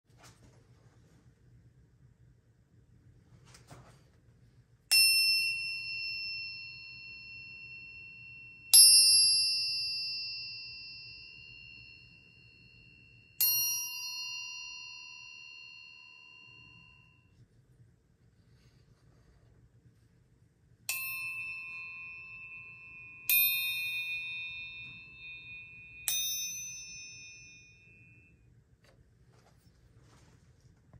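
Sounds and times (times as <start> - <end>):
metal spike chime ringing: 20.9 - 28.3.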